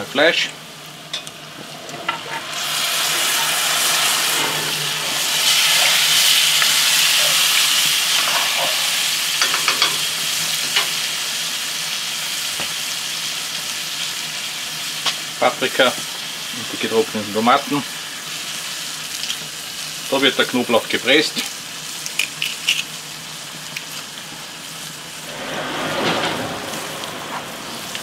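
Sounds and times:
meat sizzling in a pot: 0:00.0 - 0:25.4.

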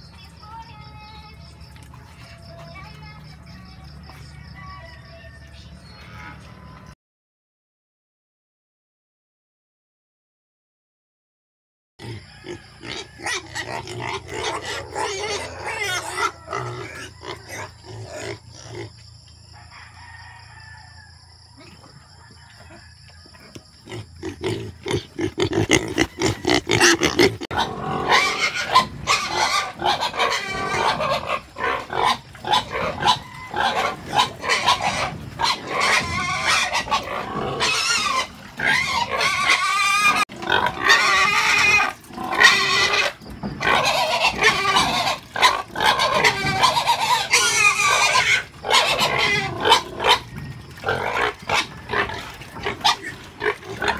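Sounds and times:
pigs squealing and grunting: 0:12.0 - 0:19.0, 0:22.6 - 0:53.9.

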